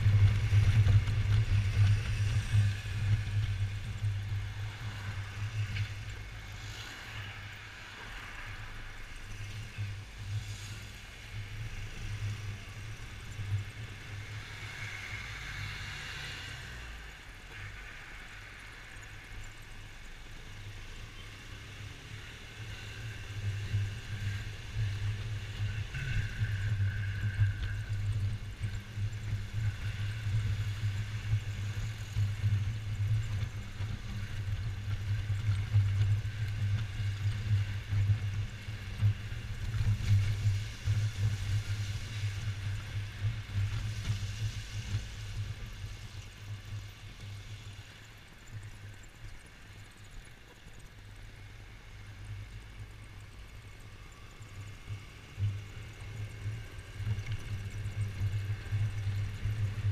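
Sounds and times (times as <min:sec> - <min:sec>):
scooter engine humming: 0:00.0 - 0:04.6
wind noise: 0:00.0 - 0:19.2, 0:22.6 - 0:49.1
traffic noise: 0:00.0 - 0:59.9.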